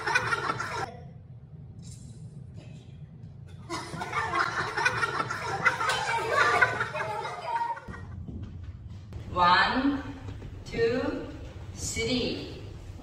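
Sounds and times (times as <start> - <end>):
women laughing and chattering: 3.7 - 8.0.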